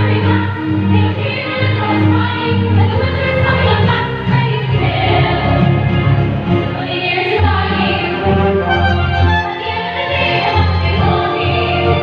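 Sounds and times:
bowed double bass notes: 0:07.5 - 0:09.9
orchestra playing: 0:08.0 - 0:11.3.

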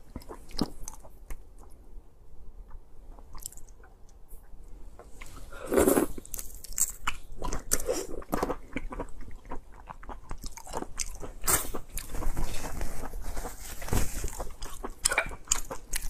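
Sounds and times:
shrimp being chewed: 0:00.0 - 0:01.8, 0:02.6 - 0:03.9, 0:05.2 - 0:13.1, 0:14.2 - 0:16.0.

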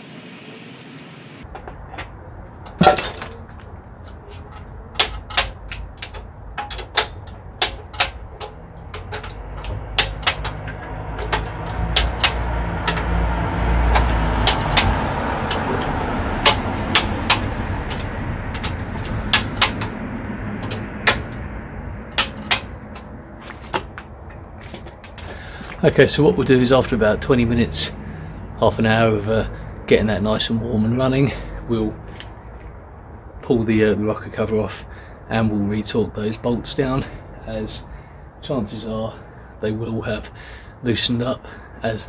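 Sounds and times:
low rumble: 0:08.2 - 0:29.8.

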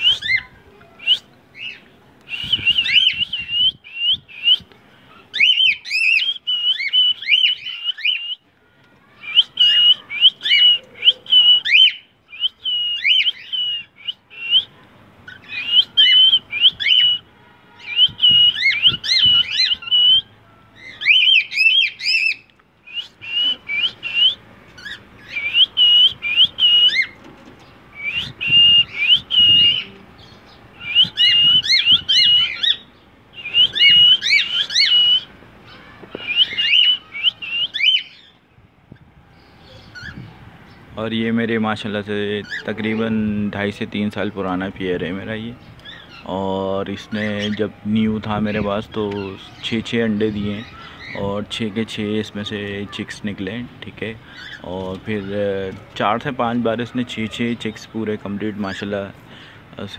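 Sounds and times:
cockatiel whistling: 0:00.0 - 0:04.7, 0:09.2 - 0:14.7, 0:17.8 - 0:20.3, 0:20.9 - 0:27.2, 0:28.0 - 0:29.9, 0:30.8 - 0:32.8, 0:33.4 - 0:35.3, 0:36.2 - 0:38.3.

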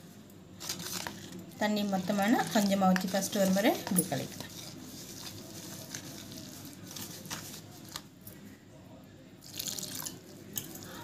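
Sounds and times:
whisk scraping in bowl: 0:00.7 - 0:08.0
water pouring into bowl: 0:09.4 - 0:11.0.

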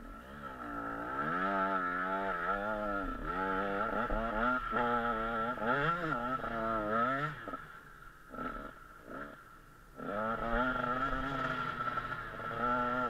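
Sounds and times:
motocross engine revving: 0:00.0 - 0:13.0.

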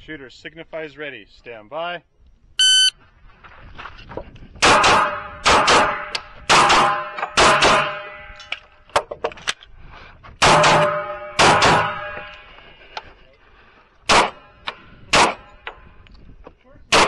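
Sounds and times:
pistol shots with echo: 0:04.6 - 0:08.1, 0:10.4 - 0:12.2, 0:14.1 - 0:15.5.

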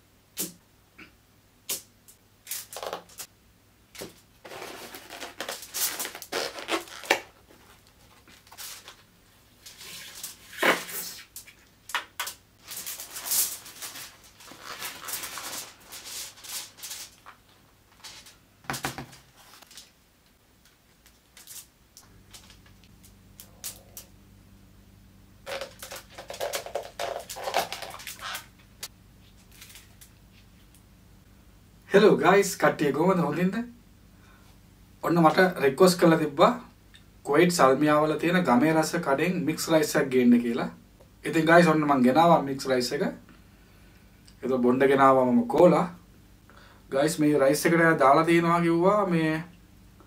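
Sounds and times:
foil crinkling: 0:04.0 - 0:11.6, 0:12.6 - 0:18.4, 0:21.0 - 0:24.1, 0:25.5 - 0:28.6, 0:29.3 - 0:30.4.

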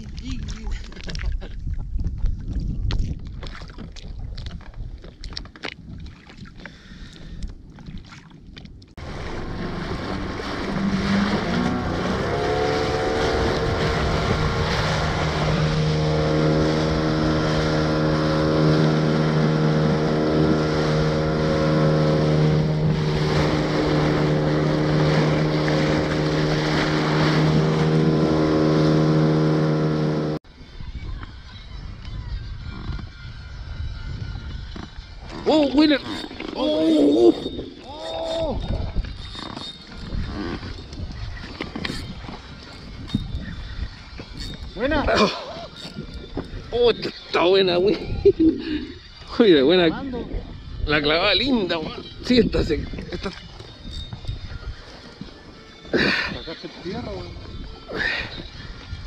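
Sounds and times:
wind buffeting microphone: 0:00.0 - 0:29.4, 0:30.4 - 0:59.0
outboard motor running: 0:09.0 - 0:30.4, 0:34.3 - 0:50.3
rush of wake and spray: 0:09.0 - 0:30.4.

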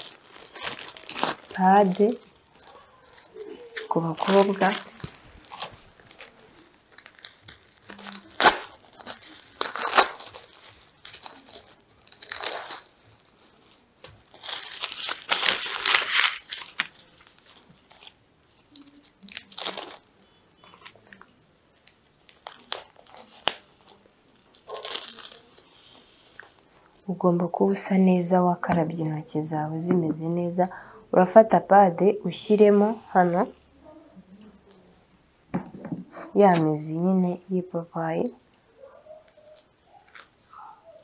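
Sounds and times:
plastic wrapper tearing and crinkling: 0:00.0 - 0:26.6, 0:40.0 - 0:40.4.

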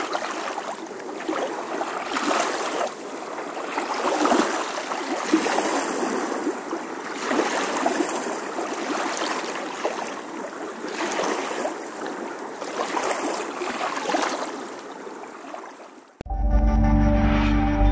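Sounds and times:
water lapping against stone wall: 0:00.0 - 0:16.2
music: 0:16.2 - 0:17.9.

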